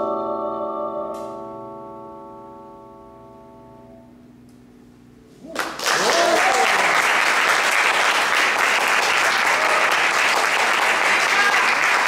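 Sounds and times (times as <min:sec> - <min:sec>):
person cheering: 0:05.4 - 0:07.1, 0:09.4 - 0:10.0, 0:11.1 - 0:12.0
audience applause: 0:05.5 - 0:12.0.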